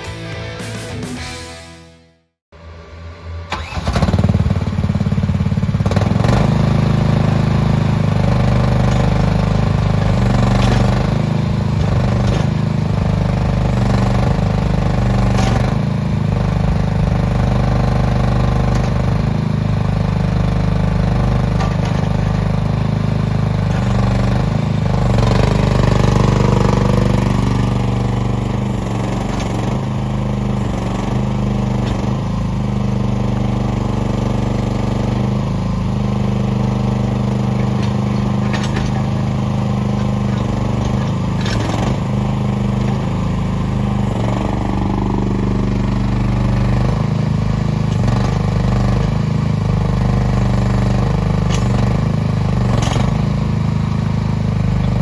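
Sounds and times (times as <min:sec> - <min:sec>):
excavator engine running: 0:00.0 - 0:02.0, 0:02.6 - 0:55.0
hydraulic clunks: 0:08.9 - 0:17.0, 0:21.3 - 0:22.8, 0:23.4 - 0:35.3, 0:36.6 - 0:49.2, 0:49.8 - 0:53.3.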